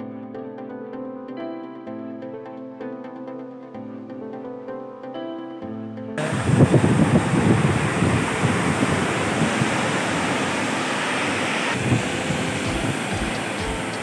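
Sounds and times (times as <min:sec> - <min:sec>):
surf breaking on beach: 0:06.2 - 0:14.0
wind buffeting microphone: 0:06.2 - 0:14.0.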